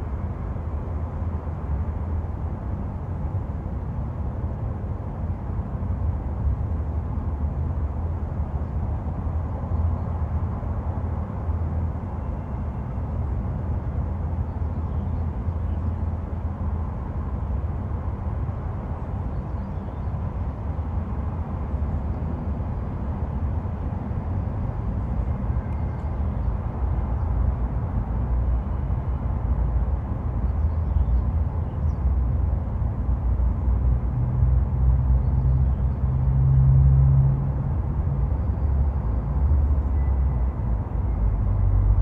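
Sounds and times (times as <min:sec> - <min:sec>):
rumble of passing vehicles: 0:00.0 - 0:42.0
low engine drone: 0:33.0 - 0:42.0.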